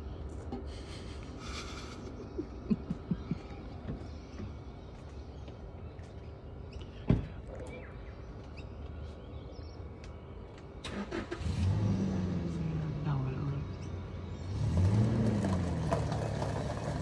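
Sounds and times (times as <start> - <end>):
engine starting and running: 10.8 - 17.0.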